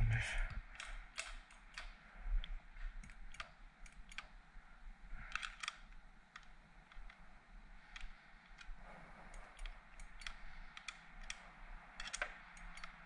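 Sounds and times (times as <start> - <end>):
metal clicks and taps of tools: 0.7 - 4.3, 7.9 - 11.4, 12.0 - 13.0.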